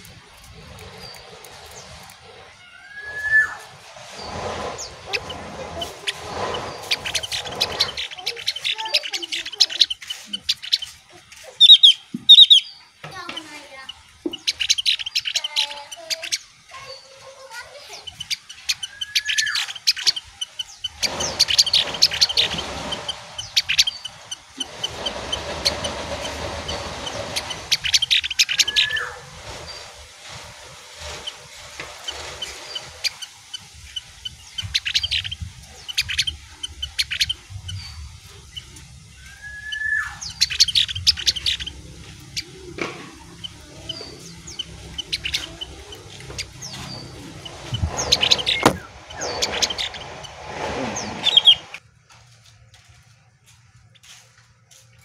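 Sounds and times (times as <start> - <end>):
songbird chirping and trilling: 0.0 - 51.8
rising whistled note: 2.9 - 4.3.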